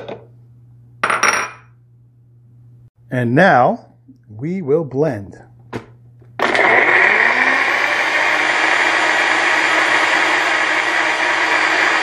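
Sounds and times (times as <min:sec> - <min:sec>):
blender blending ice: 0:06.4 - 0:12.0.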